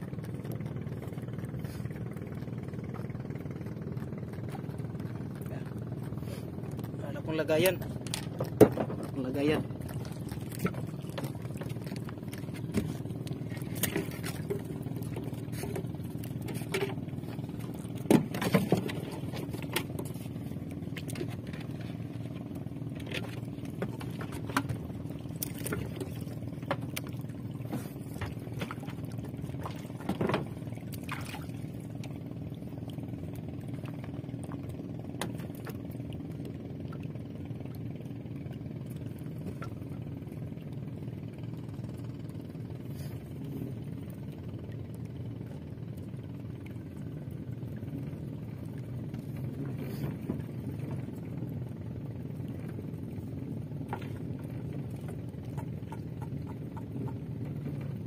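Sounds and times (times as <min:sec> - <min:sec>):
boat engine humming: 0:00.0 - 0:58.0
gear knocking on wooden hull: 0:06.9 - 0:22.0, 0:53.8 - 0:58.0.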